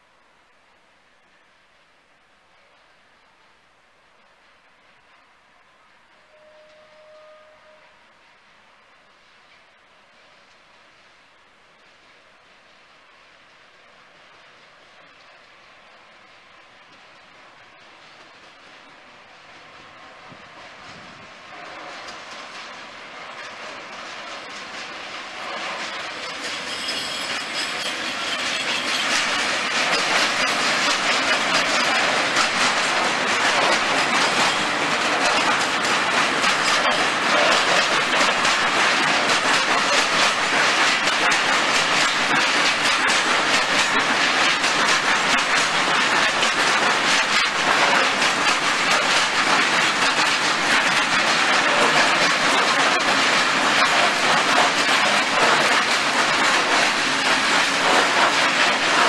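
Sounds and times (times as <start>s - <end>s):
electric locomotive passing: 2.6s - 59.0s
train wheels clattering over rail joints: 20.2s - 59.0s.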